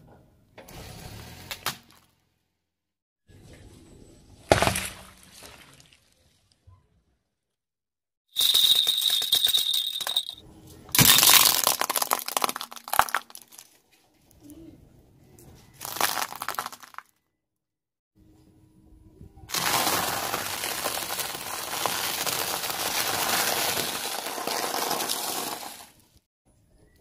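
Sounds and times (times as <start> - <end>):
rattle jingle: 8.4 - 10.4
plastic crunching: 11.0 - 13.8, 15.8 - 17.0, 19.5 - 26.0.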